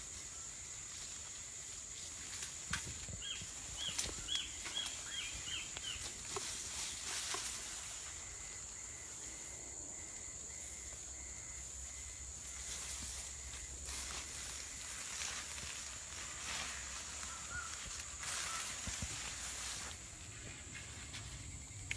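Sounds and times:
rustles in grass: 0.0s - 21.9s.

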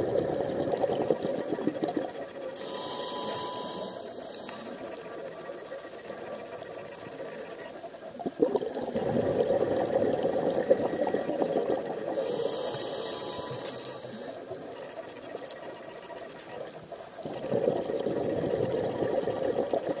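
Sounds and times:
exhaled bubbles underwater: 0.0s - 2.6s, 3.4s - 20.0s
regulator hiss: 2.6s - 4.9s, 12.2s - 14.6s.

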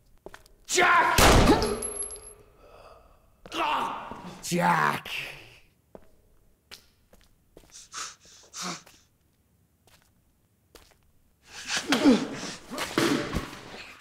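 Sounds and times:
man yelling: 0.7s - 1.2s, 3.5s - 5.6s.

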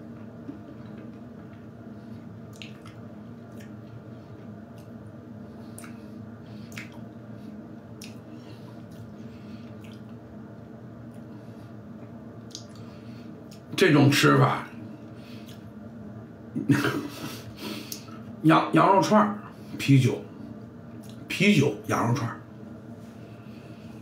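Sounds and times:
steady low hum: 0.0s - 24.0s
chewing crunches and mouth sounds: 0.5s - 7.2s, 7.9s - 10.2s, 12.0s - 13.7s, 20.9s - 21.3s.

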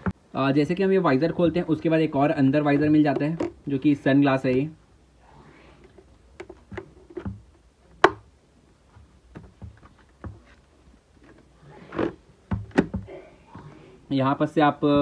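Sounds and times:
helmet visor clicking: 8.0s - 8.3s.

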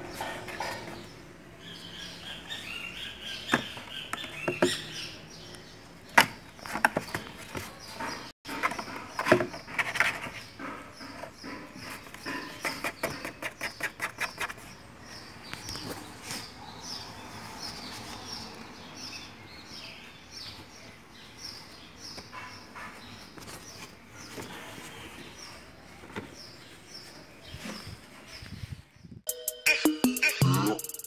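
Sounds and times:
scratching on cardboard box: 6.7s - 14.8s.

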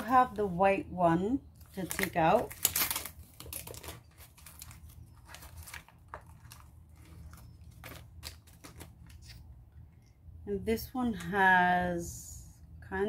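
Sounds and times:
plastic packaging crinkling: 1.5s - 9.5s.

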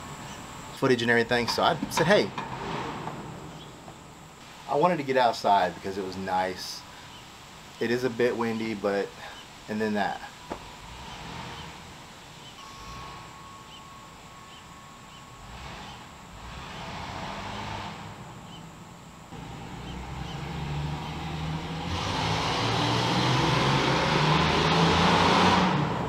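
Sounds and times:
noisy car engine: 0.0s - 4.7s, 10.0s - 26.0s
faint high chirps: 7.0s - 16.2s.

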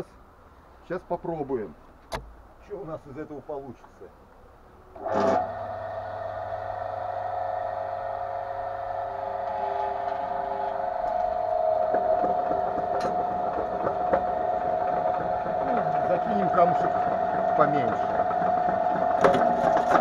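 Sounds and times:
jaw crusher motor whine: 5.0s - 20.0s.

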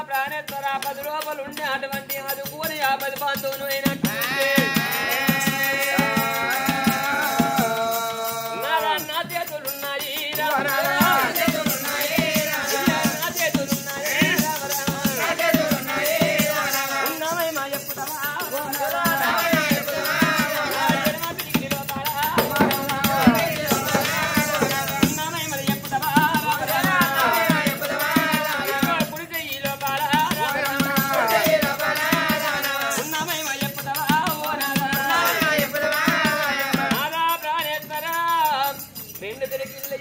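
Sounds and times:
bell-like jingling: 0.0s - 40.0s
steady drum beat: 2.0s - 37.3s.

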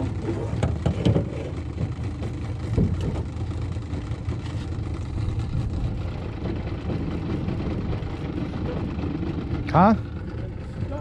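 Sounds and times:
outboard motor droning: 0.0s - 11.0s.

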